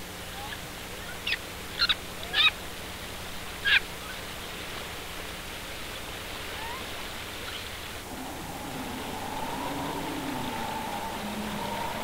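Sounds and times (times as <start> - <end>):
steady hiss: 0.8 - 12.0
faint gliding calls: 6.4 - 12.0
high animal calls: 8.0 - 12.0.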